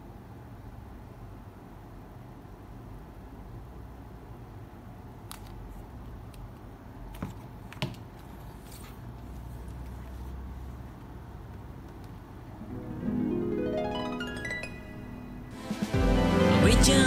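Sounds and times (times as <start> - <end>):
paper cover rustling: 8.1 - 10.6
low steady hum: 8.3 - 17.0.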